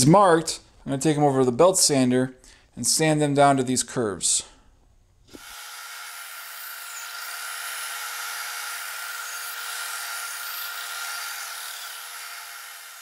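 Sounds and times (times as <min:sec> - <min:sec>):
belt sander sanding wood: 0:05.3 - 0:13.0.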